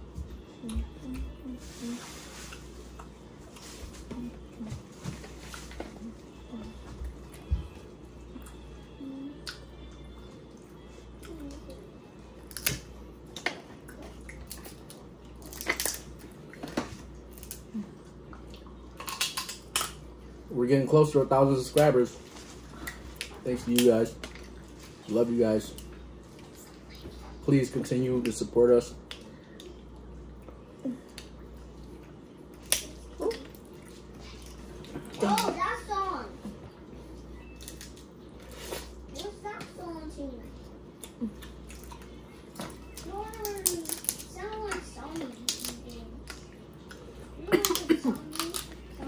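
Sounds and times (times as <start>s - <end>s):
quiet eating sounds: 0.0s - 49.0s
chewing: 40.9s - 44.2s.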